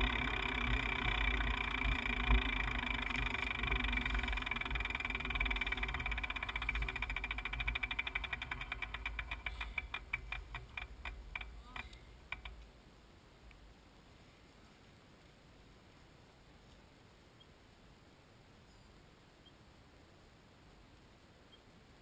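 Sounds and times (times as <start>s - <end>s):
low rumble: 0.0s - 8.8s
bicycle freehub ticking: 0.0s - 12.6s.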